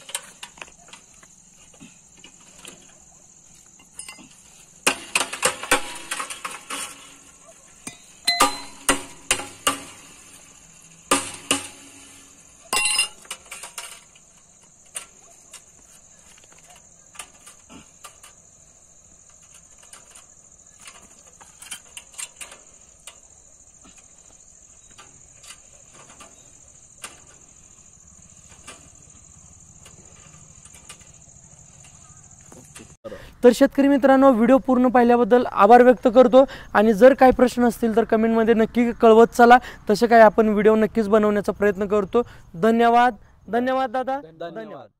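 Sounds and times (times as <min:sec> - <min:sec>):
light clinks of wire: 0:00.0 - 0:10.9
high insect chirr: 0:00.0 - 0:44.9
wire knocking on steel post: 0:07.8 - 0:10.2, 0:11.1 - 0:12.1.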